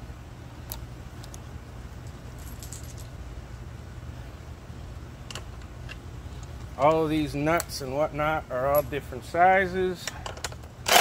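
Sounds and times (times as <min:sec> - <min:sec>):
steady low rumble: 0:00.0 - 0:10.9
metal tools clinking: 0:08.6 - 0:09.1.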